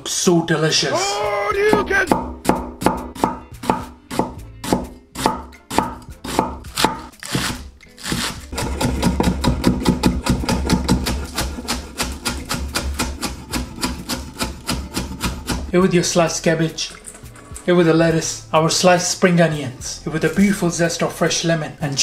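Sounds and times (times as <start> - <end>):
knife chopping onions: 1.6 - 15.7
knife slicing cabbage on board: 3.2 - 15.7.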